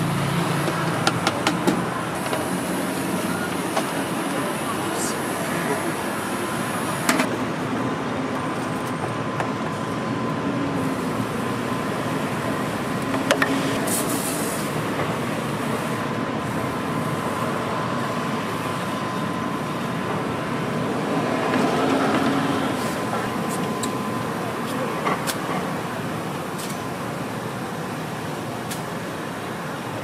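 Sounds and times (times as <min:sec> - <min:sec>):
street noise rumble and hiss: 0:00.0 - 0:30.0
faint steady high tone: 0:03.0 - 0:07.0.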